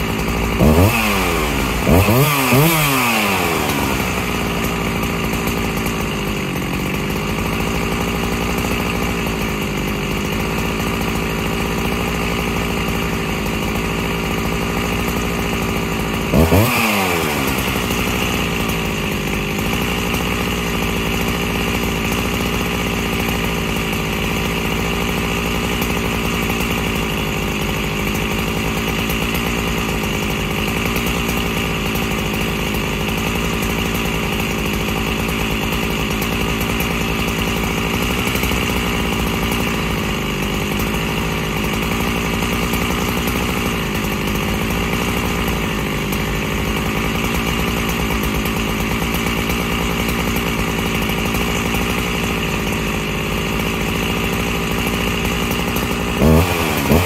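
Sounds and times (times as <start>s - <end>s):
chainsaw idling: 0.0s - 57.0s
chainsaw revving: 0.0s - 57.0s.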